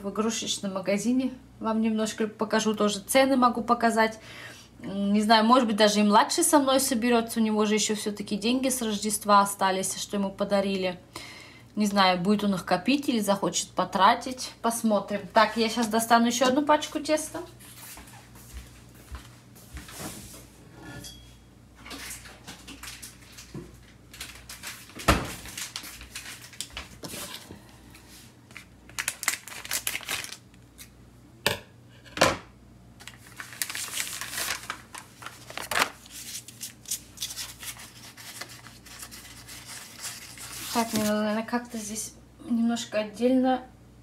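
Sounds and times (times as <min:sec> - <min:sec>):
baking paper rustling: 0:21.8 - 0:30.9, 0:33.0 - 0:42.0.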